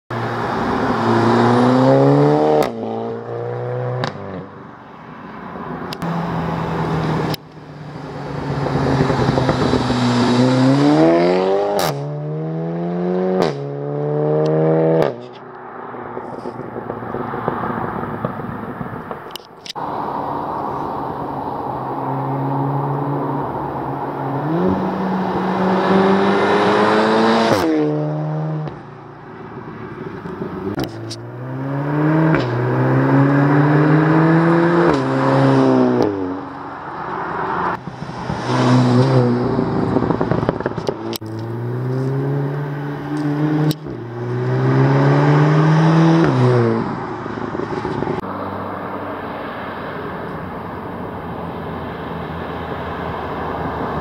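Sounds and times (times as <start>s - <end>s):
cars accelerating past: 0.1s - 54.0s
road noise: 0.1s - 54.0s.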